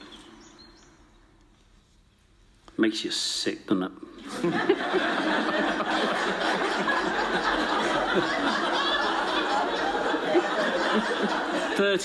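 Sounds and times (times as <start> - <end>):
audience laughing: 4.2 - 12.0.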